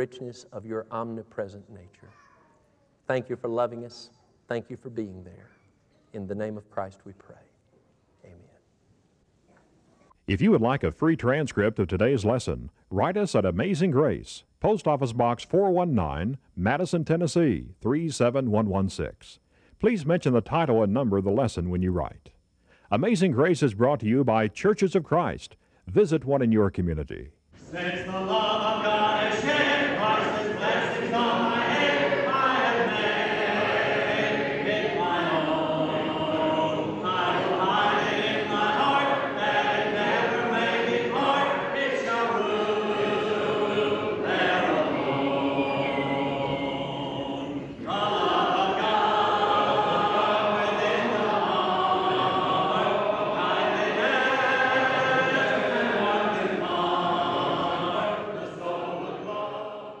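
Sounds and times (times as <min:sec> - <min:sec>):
congregation singing a hymn: 0:27.5 - 1:00.0.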